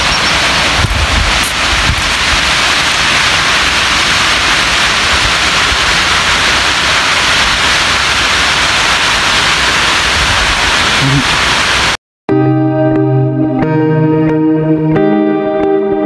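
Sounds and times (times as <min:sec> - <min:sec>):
water rushing down spillway: 0:00.0 - 0:12.0.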